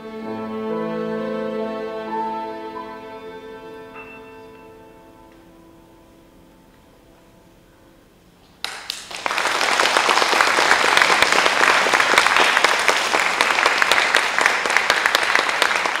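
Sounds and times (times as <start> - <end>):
audience applauding: 8.6 - 16.0.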